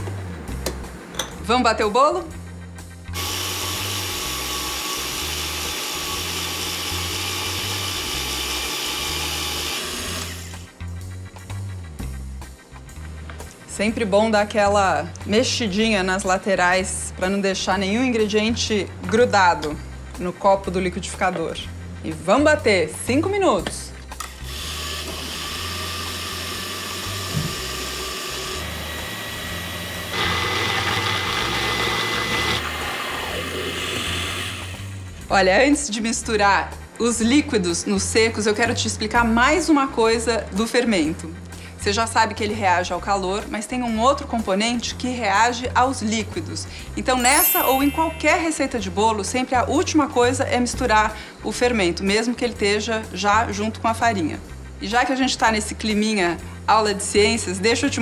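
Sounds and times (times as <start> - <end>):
blender motor running: 3.1 - 10.7, 24.2 - 35.1.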